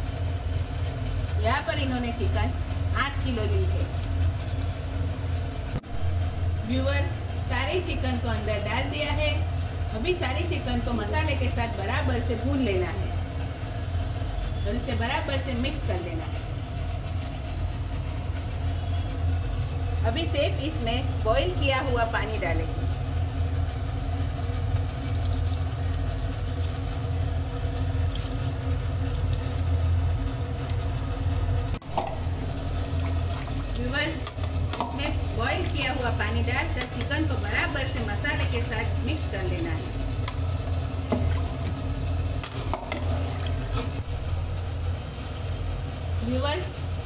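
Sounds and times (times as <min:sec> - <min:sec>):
steady low hum: 0:00.0 - 0:47.0
water pouring into a pot: 0:23.0 - 0:34.8, 0:41.0 - 0:41.8, 0:42.8 - 0:43.8.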